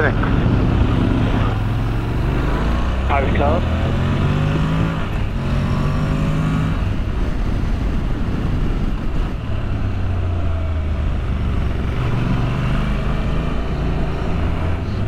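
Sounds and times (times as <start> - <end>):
motorcycle engine running: 0.0 - 4.1
wind rushing over microphone: 0.0 - 15.0.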